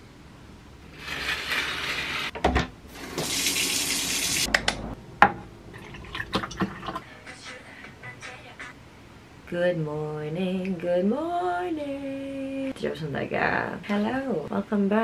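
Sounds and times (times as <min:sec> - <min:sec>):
water running from a tap: 0:03.0 - 0:04.5.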